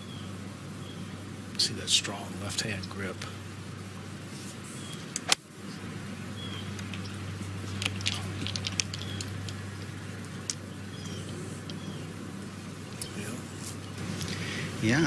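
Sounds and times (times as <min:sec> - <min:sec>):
bird chirps: 0:00.0 - 0:01.2, 0:06.3 - 0:07.2, 0:08.9 - 0:09.4, 0:10.5 - 0:12.2
steady low hum: 0:00.0 - 0:15.0.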